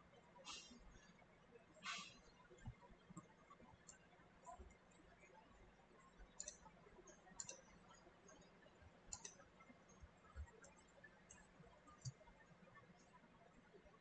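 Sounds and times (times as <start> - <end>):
mouse and keyboard clicks: 1.8 - 4.7, 6.3 - 8.4, 9.0 - 12.2.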